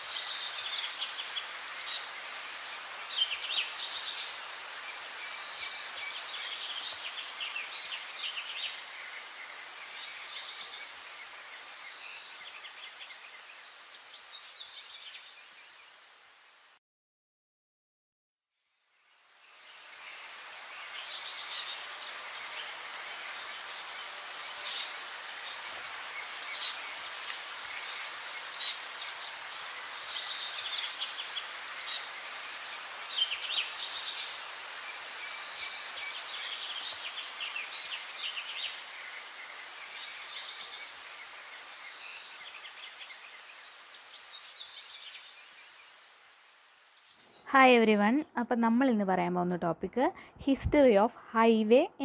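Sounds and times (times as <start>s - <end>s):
steady hiss: 0.0s - 16.8s, 18.8s - 47.9s
songbirds chirping and trilling: 19.3s - 48.1s.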